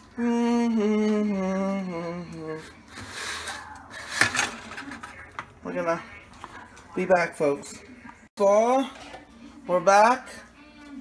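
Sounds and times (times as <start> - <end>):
man humming: 0.0 - 2.8.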